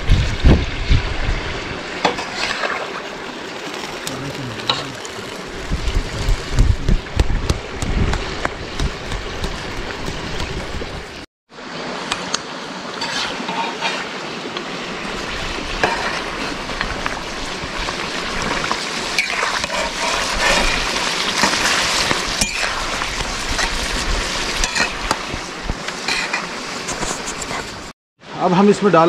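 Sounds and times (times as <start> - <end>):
chicken sizzling in hot oil: 0.0 - 7.2, 14.8 - 27.0
metal spatula scraping pan: 13.0 - 14.1, 15.8 - 16.6, 19.2 - 21.8, 24.6 - 25.1, 26.0 - 27.8.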